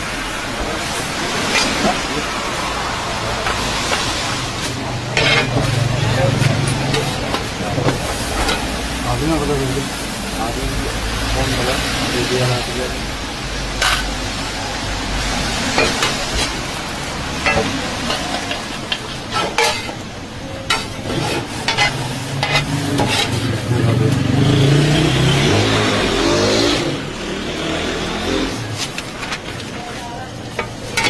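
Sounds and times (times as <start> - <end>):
bread sizzling on a griddle: 0.0 - 24.8
metal utensils scraping griddle: 1.2 - 2.2, 3.4 - 8.8, 13.8 - 14.2, 15.6 - 24.2, 30.4 - 31.0.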